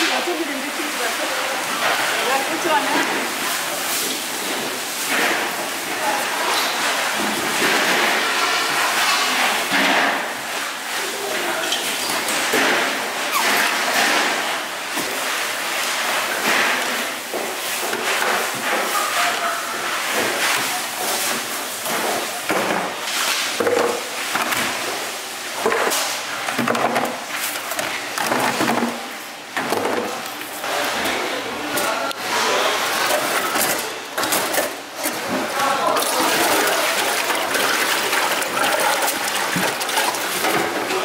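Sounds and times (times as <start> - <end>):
kitchen knocks and clatter: 29.6 - 30.2.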